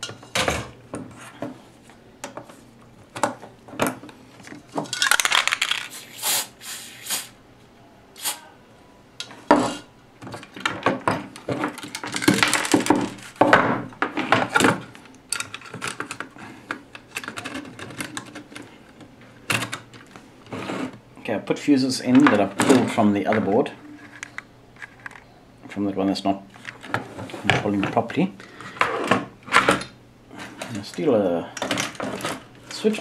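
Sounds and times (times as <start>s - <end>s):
aerosol spray can spraying: 5.9s - 7.4s, 8.2s - 8.4s
clicks and clatter of tools: 10.3s - 13.2s, 14.4s - 20.1s.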